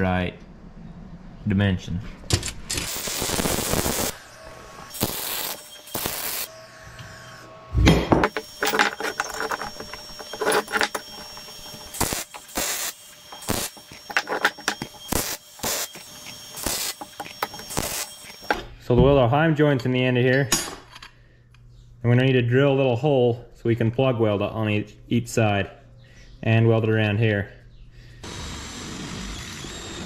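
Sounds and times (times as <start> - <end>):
metal parts clinking and knocking: 8.2 - 12.6, 13.3 - 15.2, 15.8 - 18.7.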